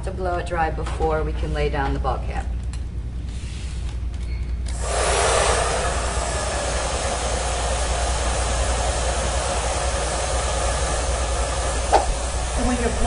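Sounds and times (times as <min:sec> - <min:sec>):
hair dryer blowing air: 0:04.7 - 0:13.0.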